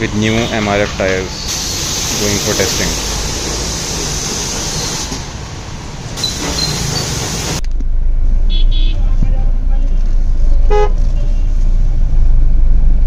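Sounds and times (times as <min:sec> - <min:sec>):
traffic and tyre hiss on wet street: 0:00.0 - 0:07.6
car engine and road drone in cabin: 0:07.3 - 0:13.0.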